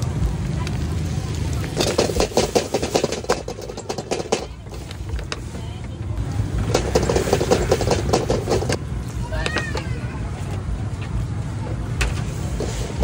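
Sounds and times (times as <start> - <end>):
dense crackling: 0.0 - 10.0
traffic rumble: 0.0 - 13.0.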